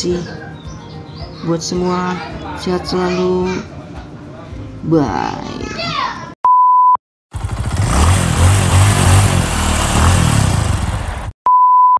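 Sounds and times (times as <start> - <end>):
motorcycle engine running: 7.3 - 11.3.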